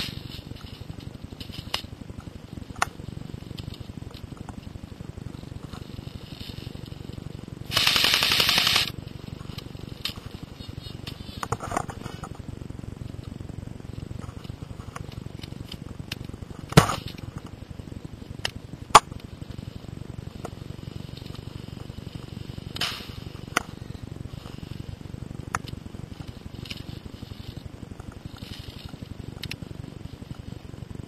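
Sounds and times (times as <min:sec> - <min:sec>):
airsoft gun shots: 0:07.7 - 0:08.9.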